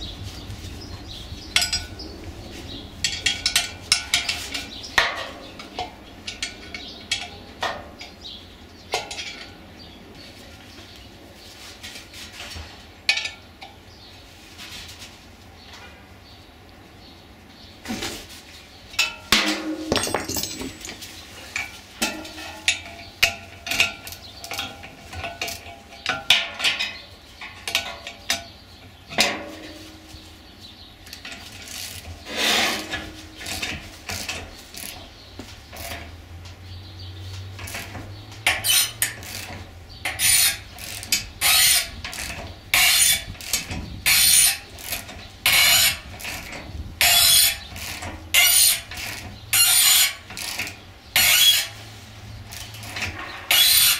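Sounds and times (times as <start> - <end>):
metal clinks of wrenches: 19.0 - 21.2.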